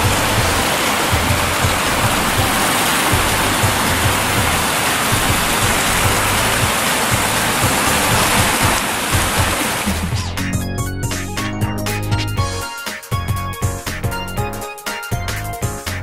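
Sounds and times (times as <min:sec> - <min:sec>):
cascading water rushing: 0:00.0 - 0:10.4
music with pulsing beat: 0:00.0 - 0:16.0.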